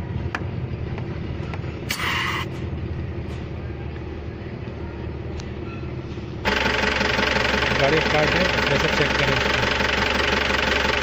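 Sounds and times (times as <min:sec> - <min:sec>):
truck engine idling: 0:00.0 - 0:11.0
short air hiss: 0:01.9 - 0:02.5.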